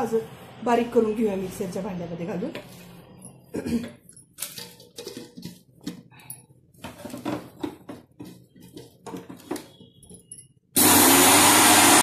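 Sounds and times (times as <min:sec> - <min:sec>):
spices rattling and scraping: 0:04.0 - 0:10.6.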